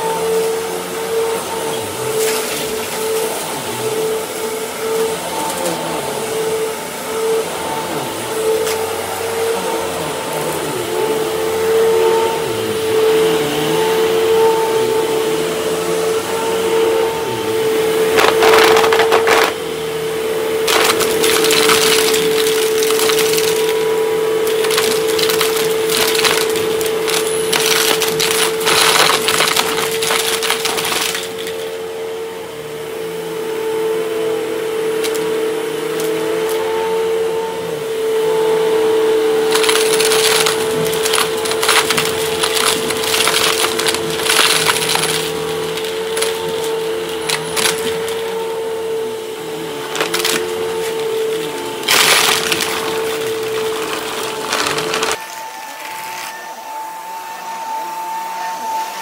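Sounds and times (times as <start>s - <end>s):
vacuum cleaner motor whine: 0.0s - 59.0s
confetti rattling through nozzle: 39.5s - 46.6s.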